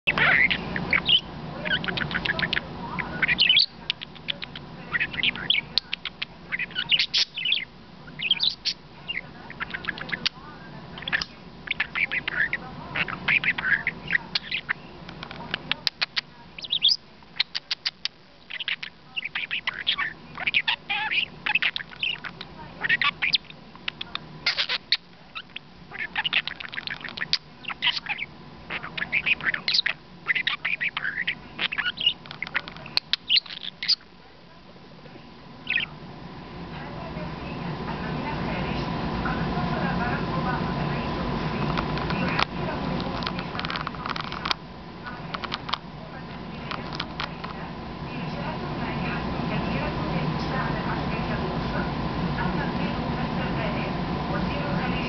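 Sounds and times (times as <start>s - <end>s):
budgerigar chattering: 0.1s - 34.1s, 35.6s - 36.0s, 41.6s - 45.8s, 46.6s - 47.6s.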